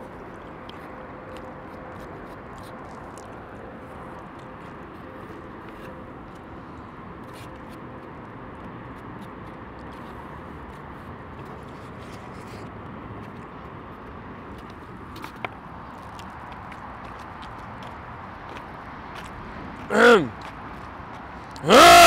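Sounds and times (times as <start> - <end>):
city traffic hum: 0.0 - 22.0
man chewing: 2.5 - 3.4.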